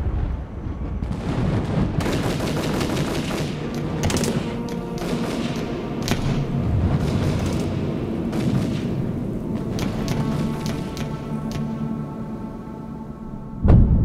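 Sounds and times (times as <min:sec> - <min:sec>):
low film score: 0:00.0 - 0:14.0
automatic rifle gunfire: 0:02.0 - 0:11.2.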